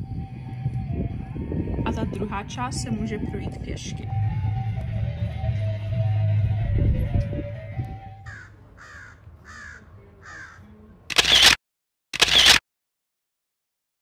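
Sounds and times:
background music: 0.0 - 8.4
crow cawing: 8.2 - 10.7
short rushes of noise: 12.2 - 12.6.

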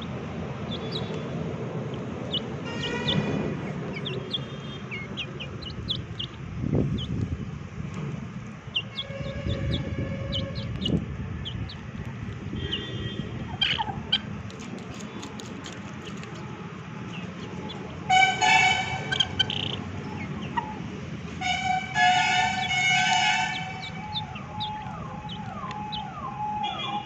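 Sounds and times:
vehicle horn: 2.6 - 3.5, 8.9 - 10.8, 12.5 - 13.4, 18.1 - 19.4, 21.4 - 24.0.

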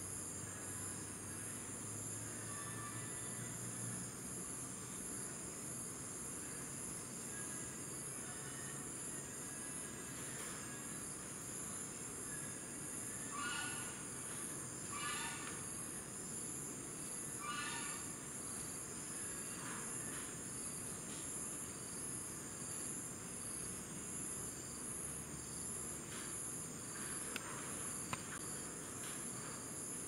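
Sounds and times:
insects buzzing: 0.0 - 30.0
animal call: 13.2 - 14.1, 14.8 - 15.7, 17.4 - 18.1.

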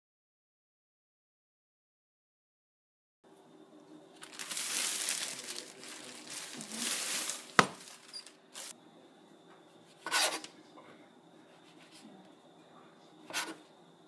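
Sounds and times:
plastic bag crinkling: 4.2 - 8.7.

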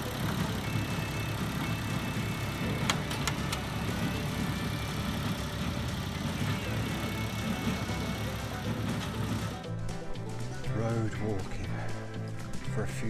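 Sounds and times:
tractor engine running: 0.0 - 11.1
baler mechanism clicks: 2.6 - 4.0.

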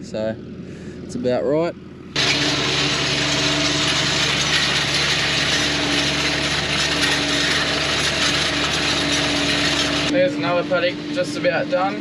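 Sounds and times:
tractor engine hum: 0.0 - 12.0
dense mechanical rattle: 2.2 - 10.1.

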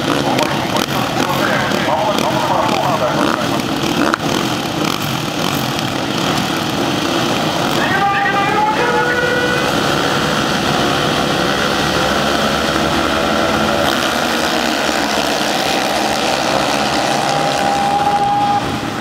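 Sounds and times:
racing motorcycle engines: 0.0 - 19.0.

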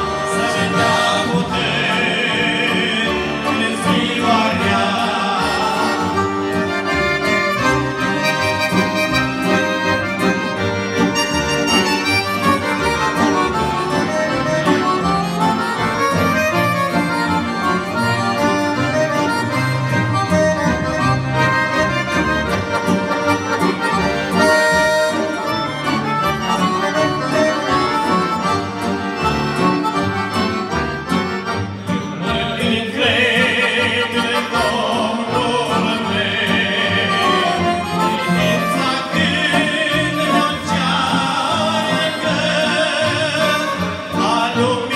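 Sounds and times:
accordions playing a hymn: 0.0 - 44.9
men singing: 0.1 - 6.6, 32.1 - 44.9.

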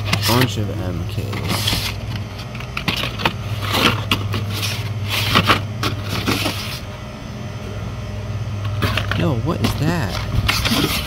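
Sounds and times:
low hum: 0.0 - 11.0
plastic blister packs rustling: 8.7 - 11.0.

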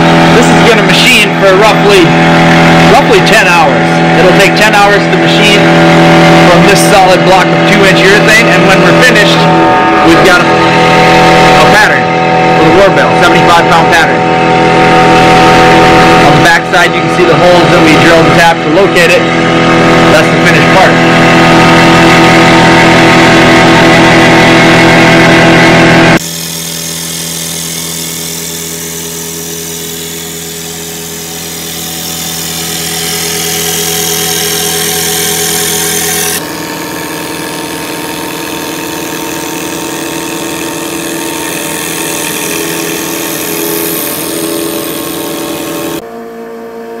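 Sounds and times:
milling machine hum: 0.0 - 46.3
hiss of cutting: 26.2 - 36.4.

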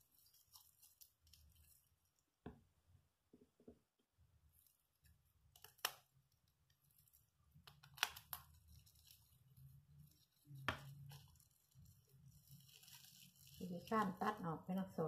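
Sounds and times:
plastic wrap crinkling: 0.0 - 2.3, 5.5 - 14.9.

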